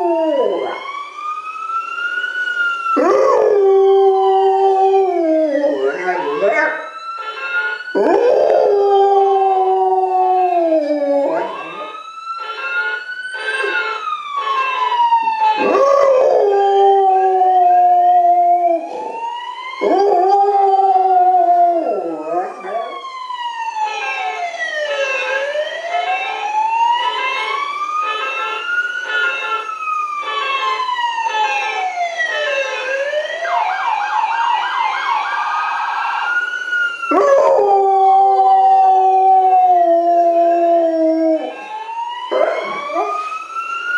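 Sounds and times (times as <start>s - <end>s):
wailing siren: 0.0s - 43.9s
dog howling: 3.0s - 6.9s, 8.0s - 11.8s, 15.6s - 19.1s, 19.8s - 23.0s, 37.1s - 41.6s, 42.3s - 43.3s.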